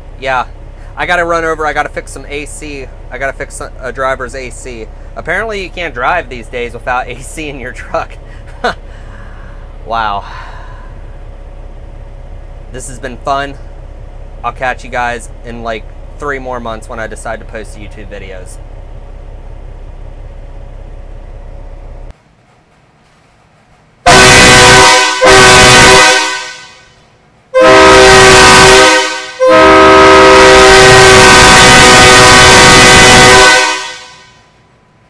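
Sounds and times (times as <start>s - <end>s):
steady low hum: 0.0s - 35.0s
air horn blasts: 24.1s - 34.6s.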